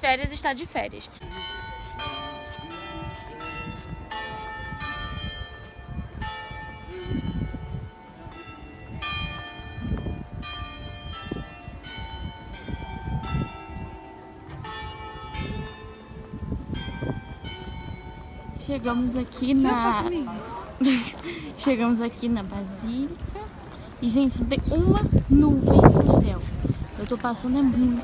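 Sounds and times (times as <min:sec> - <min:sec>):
wind on microphone: 0:00.0 - 0:28.0
church bells ringing a tune: 0:01.2 - 0:20.8.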